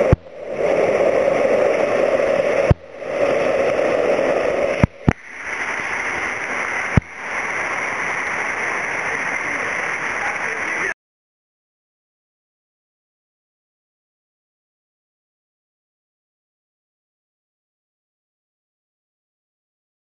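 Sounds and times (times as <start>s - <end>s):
rushing whitewater stream: 0.0s - 11.0s.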